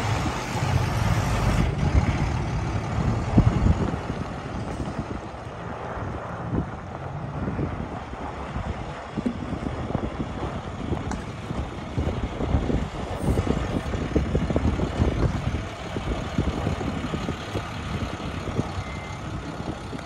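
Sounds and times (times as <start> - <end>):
truck diesel engine driving past: 0.0 - 20.0.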